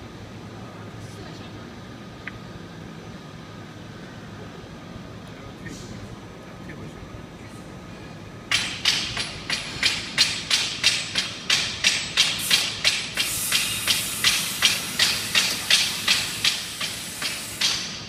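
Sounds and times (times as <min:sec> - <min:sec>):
coating machine pulsing hiss: 0:10.8 - 0:18.0.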